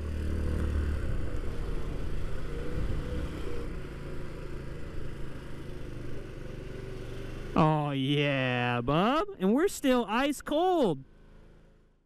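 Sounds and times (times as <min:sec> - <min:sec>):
scooter engine running: 0:00.0 - 0:09.5.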